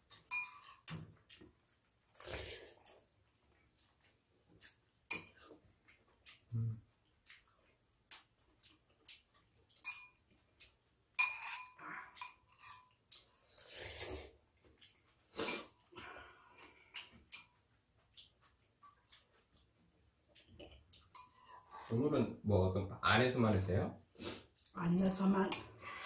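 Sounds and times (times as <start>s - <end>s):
spoons clinking on ceramic bowls: 0.1s - 1.1s, 9.8s - 10.2s, 11.2s - 13.0s, 21.0s - 21.6s, 25.4s - 26.0s.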